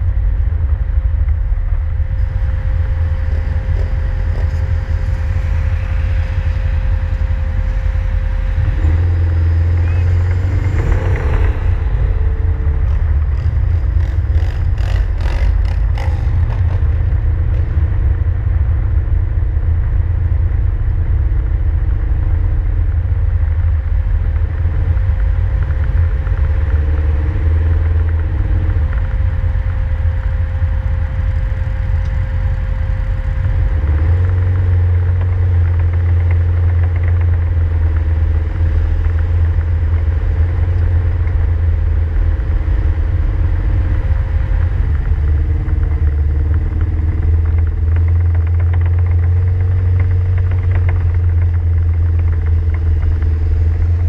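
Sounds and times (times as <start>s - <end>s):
vehicle engine and road rumble: 0.0s - 54.0s.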